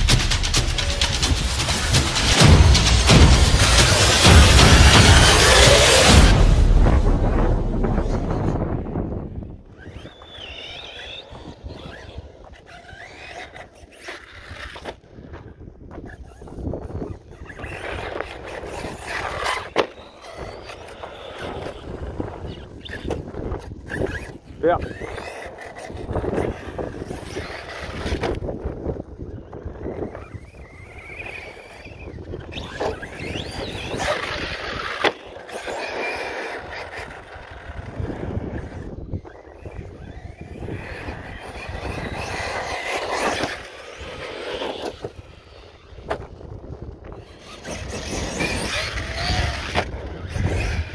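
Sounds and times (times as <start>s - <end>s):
rc car motor whining: 0.0s - 6.4s, 8.0s - 50.9s
wind on microphone: 0.0s - 50.9s
tyres scrabbling over gravel: 9.8s - 50.9s.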